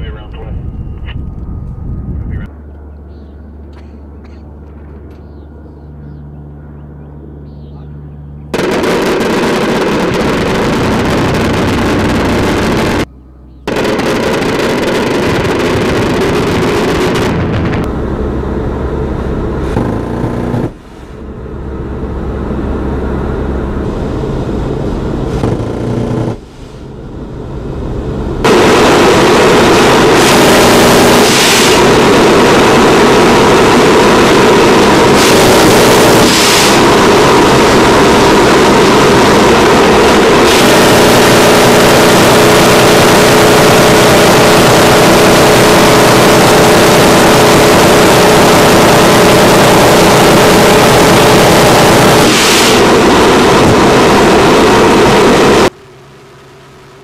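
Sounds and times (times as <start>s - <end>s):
turboprop engines and propellers: 0.0s - 57.0s.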